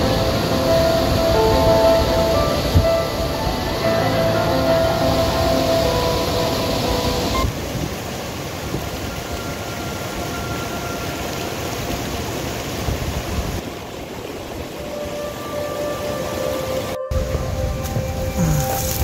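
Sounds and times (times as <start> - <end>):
music: 0.0 - 7.5, 14.8 - 19.0
stream flowing over rocks: 0.0 - 19.0.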